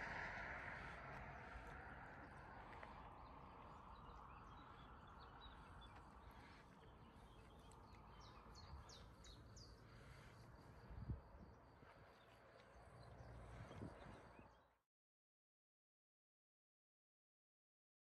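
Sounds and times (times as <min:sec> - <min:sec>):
faint birds chirping: 0:00.0 - 0:14.8
outdoor ambience: 0:00.0 - 0:14.8.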